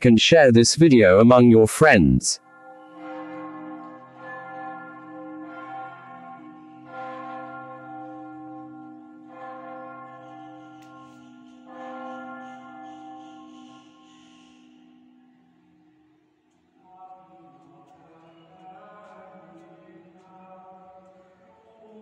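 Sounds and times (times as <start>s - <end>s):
church bell tolling: 1.3s - 15.4s.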